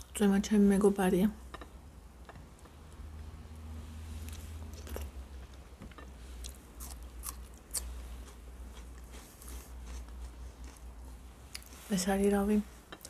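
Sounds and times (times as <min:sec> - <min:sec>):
person chewing food: 0:04.1 - 0:11.8.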